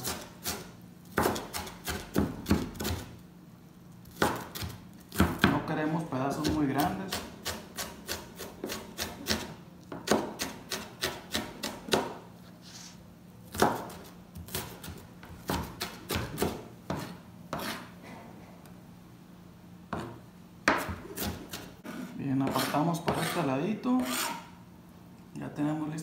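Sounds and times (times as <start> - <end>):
knife chopping on cutting board: 0.0 - 3.1, 4.0 - 5.7, 6.4 - 12.2, 13.5 - 18.2, 19.9 - 24.5.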